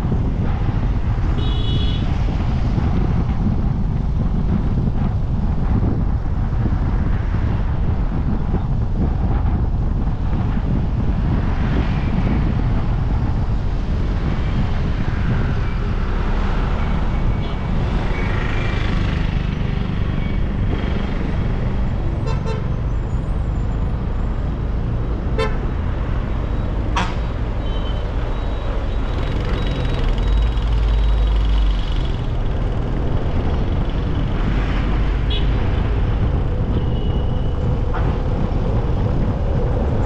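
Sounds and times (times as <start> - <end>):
car engine and road rumble: 0.0 - 40.0
vehicle horn toots: 1.4 - 2.0, 25.4 - 25.6.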